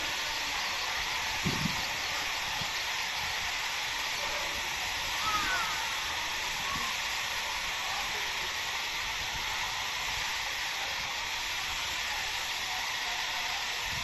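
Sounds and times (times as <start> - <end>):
water rushing down walls: 0.0 - 14.0.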